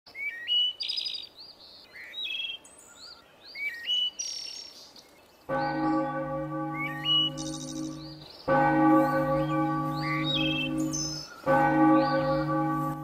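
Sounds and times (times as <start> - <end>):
songbirds chirping: 0.1 - 13.0
church bell ringing: 5.5 - 13.0.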